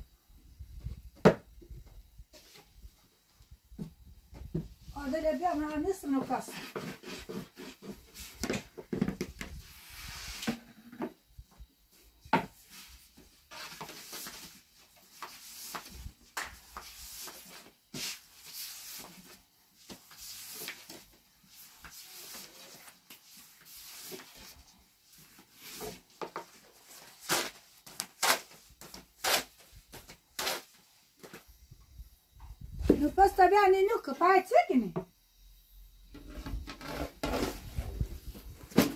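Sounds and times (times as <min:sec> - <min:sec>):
rolling pin rubbing dough: 0:06.0 - 0:08.4.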